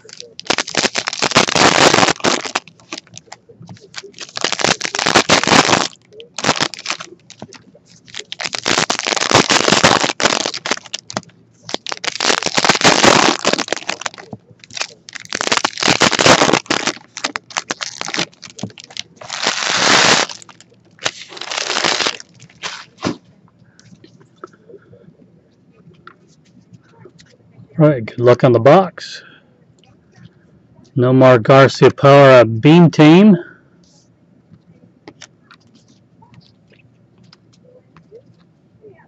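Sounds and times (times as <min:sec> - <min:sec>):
foil wrappers tearing and crinkling: 0:00.0 - 0:23.2.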